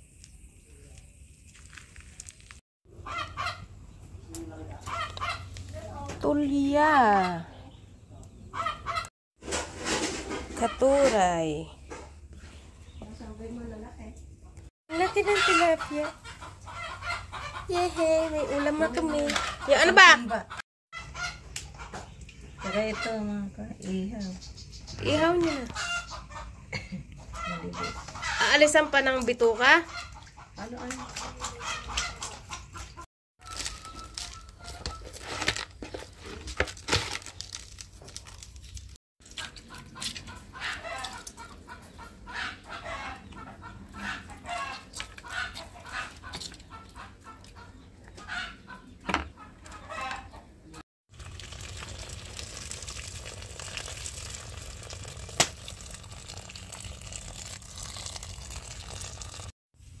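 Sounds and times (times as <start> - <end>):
chickens clucking: 2.9 - 5.7, 7.0 - 11.1, 14.4 - 35.4, 39.3 - 50.8
hands working food in basins: 14.9 - 23.3, 26.8 - 50.3, 51.1 - 59.5
water pouring into a pot: 51.1 - 59.5.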